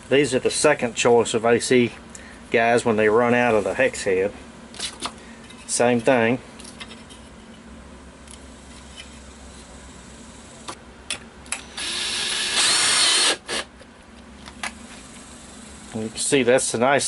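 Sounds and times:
cordless drill whining: 11.5 - 13.7.

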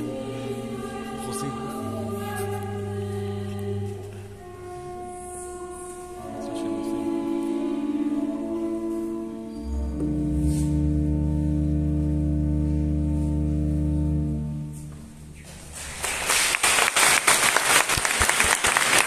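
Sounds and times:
church organ chord: 0.0 - 15.0
audience applause: 15.7 - 19.0.

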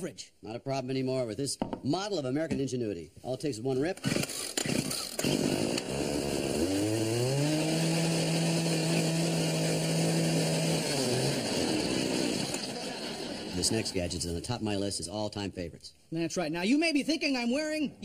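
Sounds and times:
small engine pull-started and running: 4.0 - 13.3.

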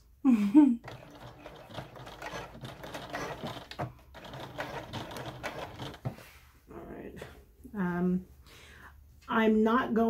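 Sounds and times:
electric sewing machine stitching: 0.8 - 6.2.

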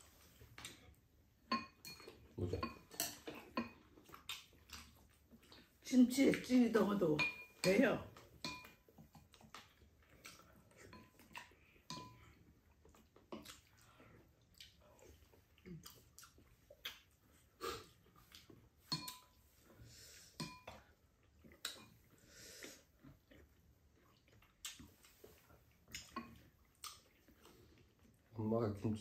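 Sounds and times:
chewing: 0.1 - 28.4
chopsticks and spoons clinking bowls: 1.4 - 4.9, 6.2 - 9.8, 10.8 - 12.4, 18.8 - 19.4, 20.4 - 21.0.

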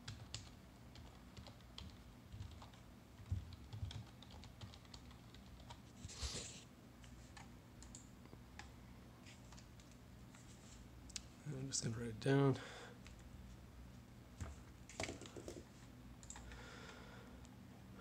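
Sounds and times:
computer keyboard typing: 0.0 - 5.8, 7.3 - 8.7, 16.2 - 16.6.

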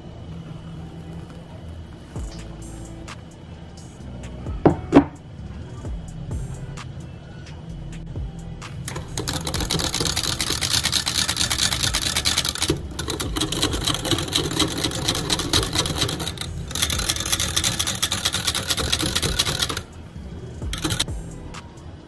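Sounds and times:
whisk rattling against glass: 8.9 - 19.9, 20.6 - 21.0.

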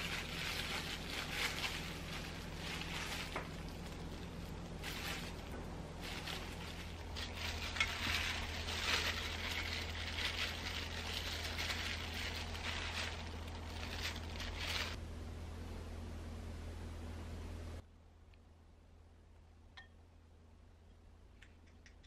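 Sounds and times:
plastic gloves crinkling: 0.0 - 15.0
low steady hum: 0.0 - 22.0.

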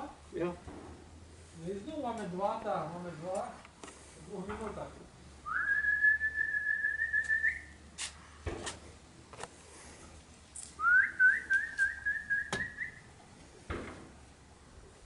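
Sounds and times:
man whistling: 5.5 - 7.7, 10.8 - 13.0.

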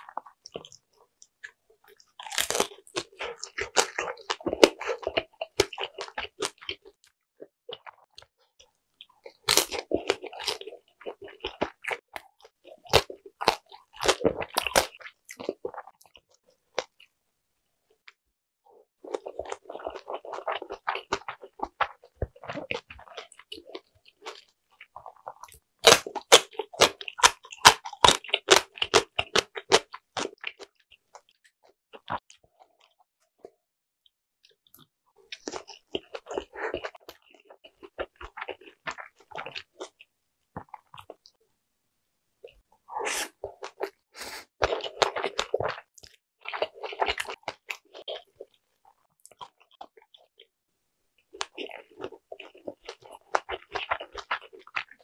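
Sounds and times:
chewing and biting dumplings: 0.0 - 17.2, 19.0 - 33.6, 34.4 - 41.4, 42.4 - 50.6, 51.2 - 55.0.

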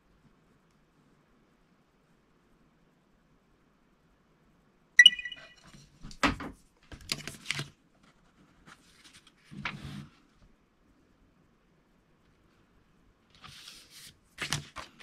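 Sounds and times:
paper rustling: 13.3 - 15.0.

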